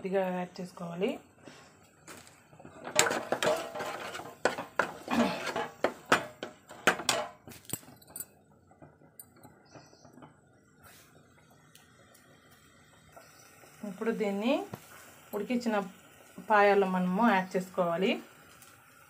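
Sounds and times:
ladle scraping a pan: 2.6s - 7.5s.

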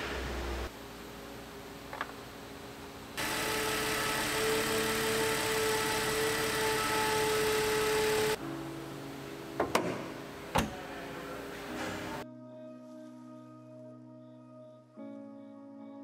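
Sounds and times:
steady whine: 3.0s - 8.4s
car engine idling: 3.2s - 8.4s.

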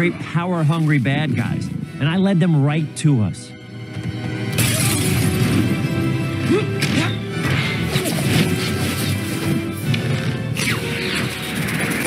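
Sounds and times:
dramatic orchestral film music: 0.0s - 12.0s.

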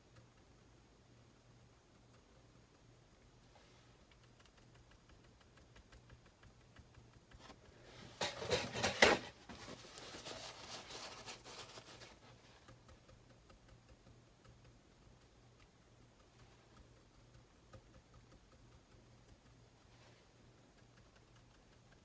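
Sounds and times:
scratchy rustling and scraping: 7.3s - 13.0s.

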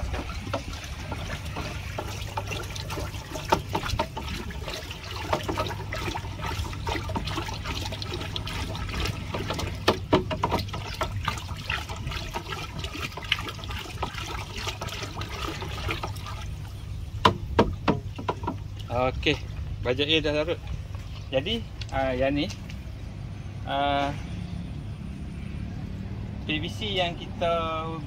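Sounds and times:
water sloshing in plastic drum: 0.0s - 23.2s
knocks and clicks: 17.2s - 18.6s.

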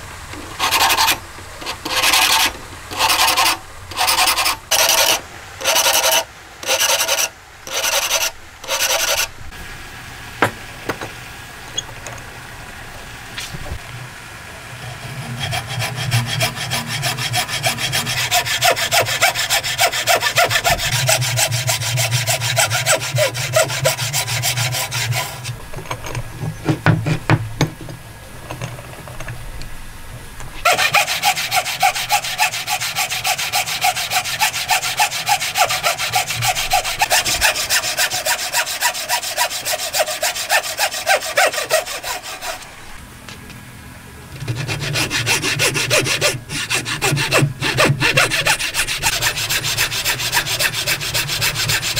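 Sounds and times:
hand saw cutting wood: 0.0s - 9.3s, 14.8s - 27.4s, 30.6s - 42.8s, 44.4s - 51.9s.

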